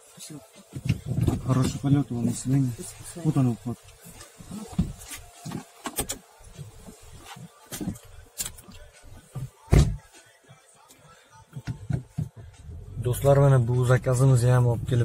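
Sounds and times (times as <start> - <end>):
car door shutting: 9.7 - 10.1
deep thump: 9.7 - 10.1.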